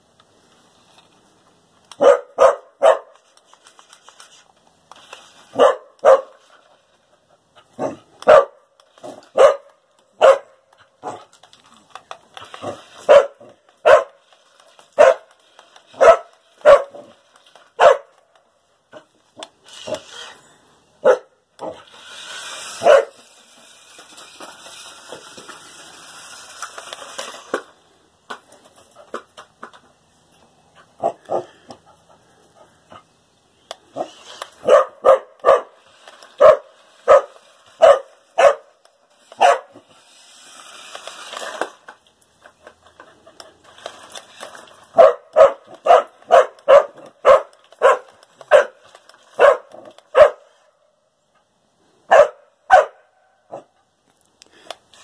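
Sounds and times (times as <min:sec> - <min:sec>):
dog barking: 0:02.0 - 0:03.1, 0:05.6 - 0:06.3, 0:07.8 - 0:08.6, 0:09.4 - 0:10.6, 0:13.1 - 0:14.2, 0:15.0 - 0:15.2, 0:16.0 - 0:17.0, 0:17.8 - 0:18.1, 0:21.0 - 0:21.8, 0:34.6 - 0:35.7, 0:36.4 - 0:38.7, 0:39.4 - 0:39.7, 0:45.0 - 0:48.8, 0:49.4 - 0:50.4, 0:52.1 - 0:53.6
electric toy car motor whirring: 0:03.2 - 0:09.6, 0:11.3 - 0:17.8, 0:19.3 - 0:20.6, 0:21.6 - 0:28.0, 0:33.7 - 0:50.6.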